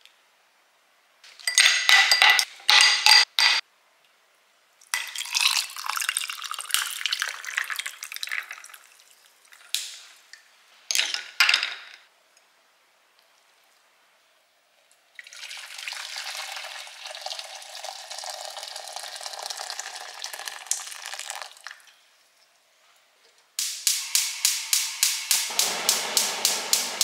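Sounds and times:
utensils clattering in a bowl: 1.3 - 3.6.

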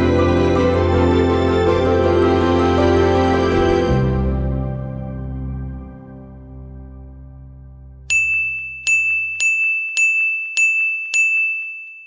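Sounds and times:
high bell-like ding: 8.1 - 12.0.

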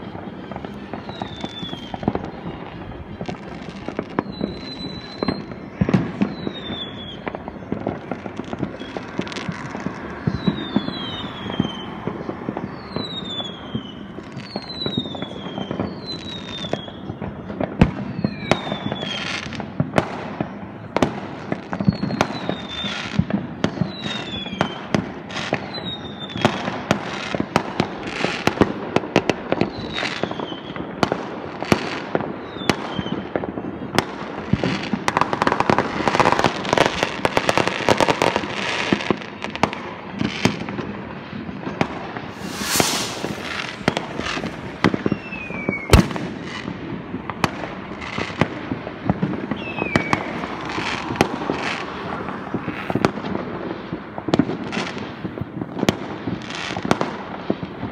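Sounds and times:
rockets whistling: 0.0 - 7.5, 8.6 - 17.0, 42.3 - 46.1
fireworks bangs and crackles: 0.0 - 57.9.

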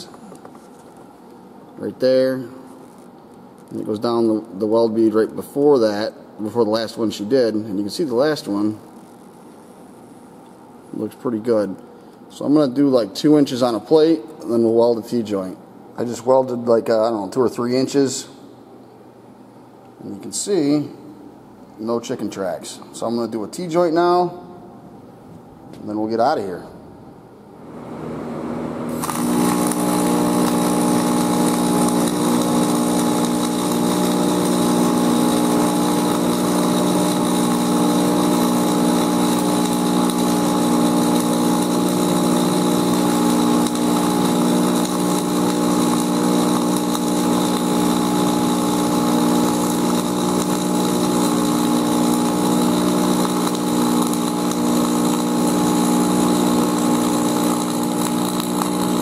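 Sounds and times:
steady hum: 0.0 - 59.0
welding arc crackling: 28.9 - 59.0.

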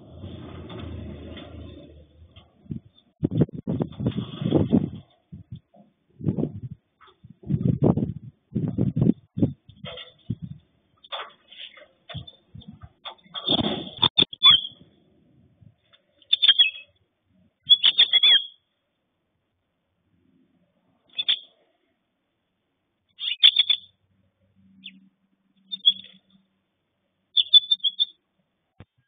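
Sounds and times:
finch chirping: 16.3 - 16.9, 17.6 - 18.6, 21.2 - 21.5, 23.2 - 23.9, 25.6 - 26.2, 27.3 - 28.2.

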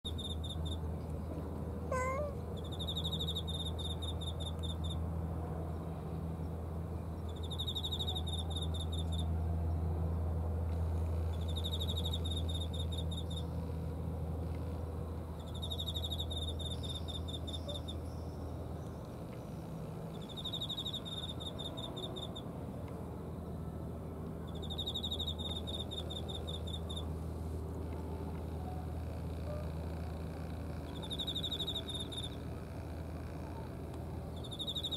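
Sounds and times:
insect chirping trills: 0.1 - 0.8, 2.6 - 5.0, 7.3 - 9.3, 11.4 - 13.5, 15.4 - 18.0, 20.1 - 22.5, 24.5 - 27.1, 30.9 - 32.4, 34.4 - 34.9
cat meowing: 1.9 - 2.4.

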